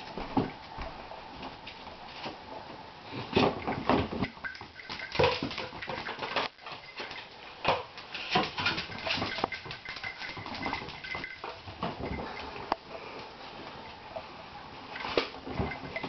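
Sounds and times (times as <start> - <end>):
dog scuffling: 3.4 - 12.4.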